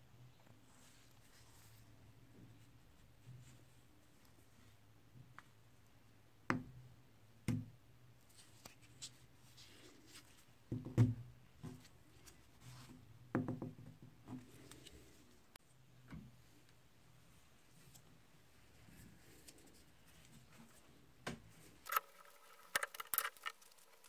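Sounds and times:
light scraping: 21.7 - 24.0.

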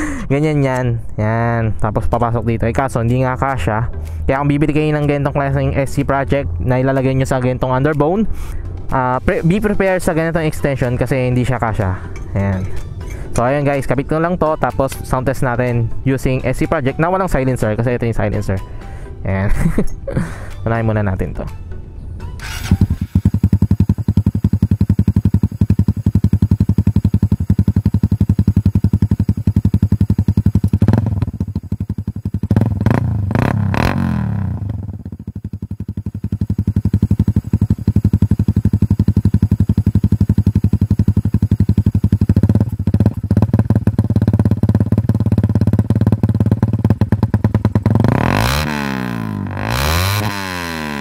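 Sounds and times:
motorcycle engine revving: 22.3 - 51.0
motorcycle engine idling: 22.4 - 51.0.

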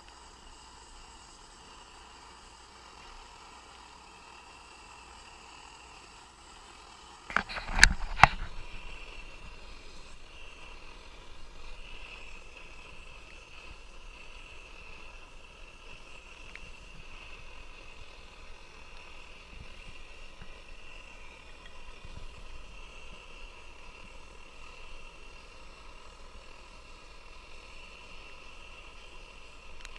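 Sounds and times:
camping stove burner running: 0.0 - 29.9
water boiling: 6.1 - 29.9.

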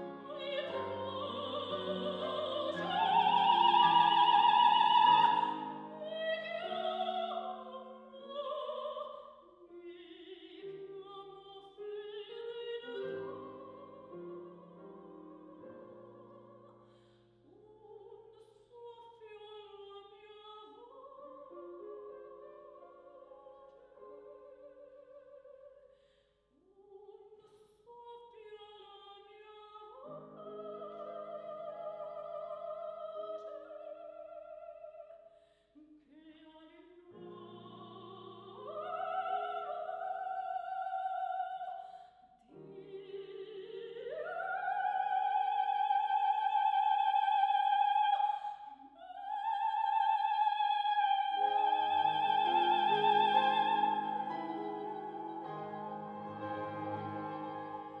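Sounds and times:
grand piano accompaniment: 0.0 - 8.8, 51.1 - 58.0
soprano singing operatic aria: 0.0 - 16.9, 17.5 - 25.9, 26.8 - 35.3, 36.0 - 58.0.

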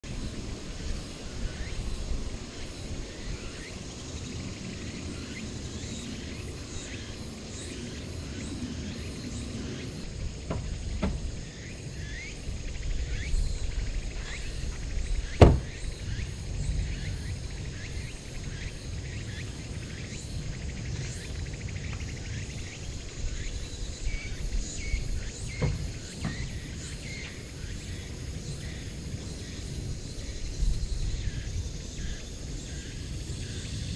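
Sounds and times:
insects chirping: 0.0 - 33.9
car door shutting: 10.1 - 11.8, 14.7 - 15.9, 25.2 - 26.8
faint knocks: 10.4 - 11.5, 15.4 - 15.8, 25.5 - 26.6.

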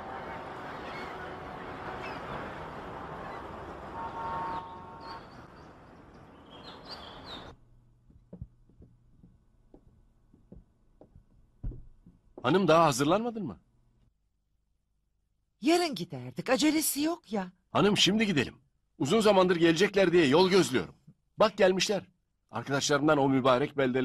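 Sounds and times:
seagulls crying: 0.0 - 3.8
steady background noise: 0.0 - 12.4
faint taps and knocks: 8.0 - 12.5.

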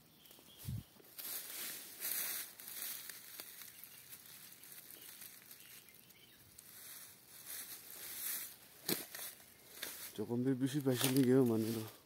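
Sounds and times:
rustling of tall grass: 0.0 - 12.0.

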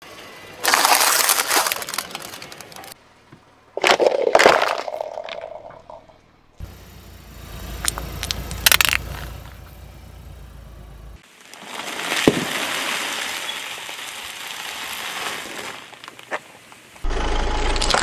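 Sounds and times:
crisp bag crinkling crunch: 0.6 - 3.0, 3.8 - 5.6
tyre cracking plastic tubes: 0.6 - 3.0, 3.8 - 6.0, 7.8 - 9.6.

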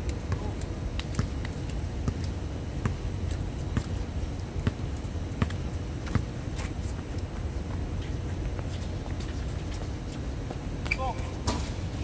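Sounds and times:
basketball bouncing on hard court: 4.6 - 4.8, 5.4 - 6.3.

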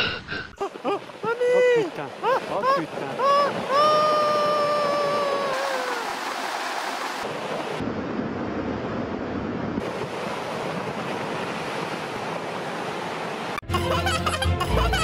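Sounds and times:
person screaming: 0.6 - 6.1.

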